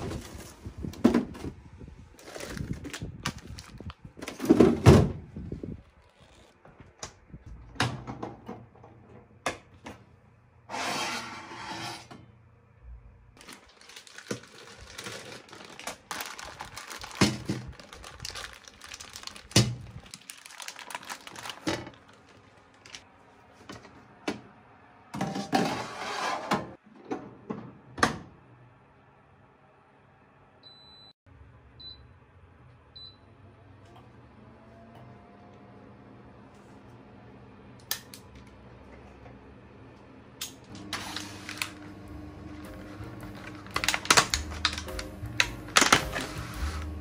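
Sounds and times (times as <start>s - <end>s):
plastic bag crinkling: 13.4s - 23.1s, 42.6s - 46.9s
metal tray clattering and scraping: 25.2s - 26.8s.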